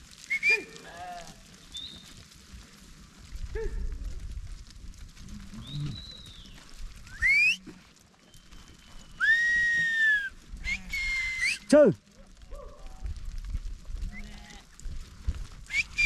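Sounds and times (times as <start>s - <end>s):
herding whistle: 0.3s - 0.8s, 7.0s - 11.7s, 15.7s - 16.0s.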